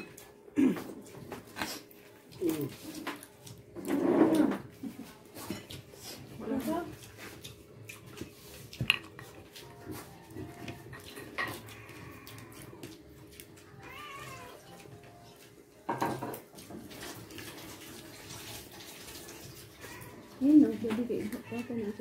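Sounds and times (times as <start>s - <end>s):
dishes clicking and knocking: 8.8s - 9.4s, 10.4s - 11.8s, 15.8s - 17.0s.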